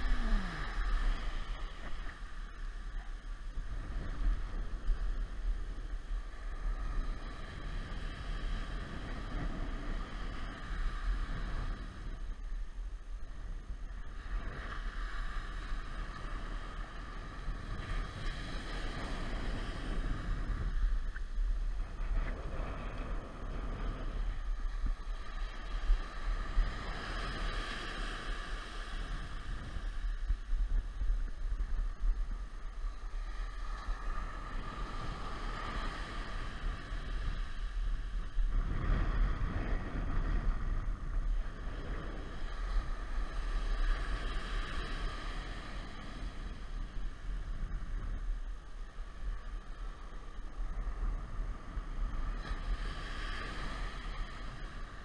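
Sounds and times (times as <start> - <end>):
ocean surf breaking: 0.0 - 12.3, 13.6 - 48.9, 49.5 - 55.0
wind rumble on microphone: 0.0 - 55.0.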